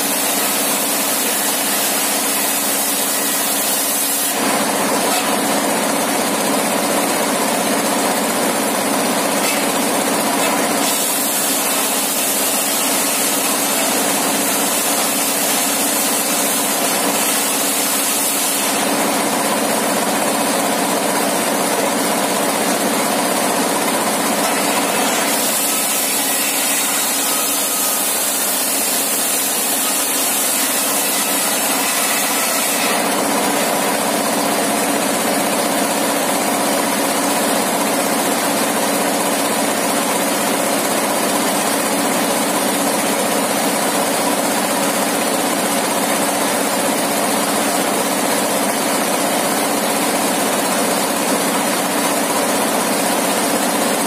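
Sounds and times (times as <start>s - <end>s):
saw blade ripping plank: 0.0s - 5.8s, 9.3s - 19.2s, 23.8s - 34.6s.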